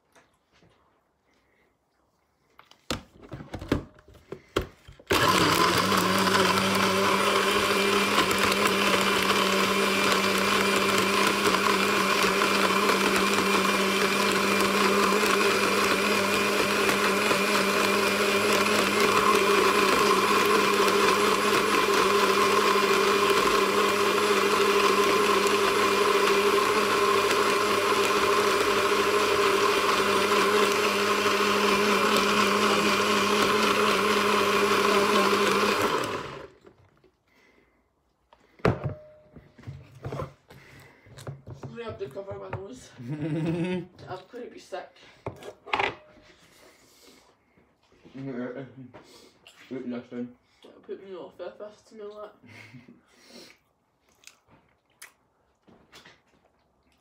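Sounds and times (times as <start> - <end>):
blender running: 5.0 - 36.7.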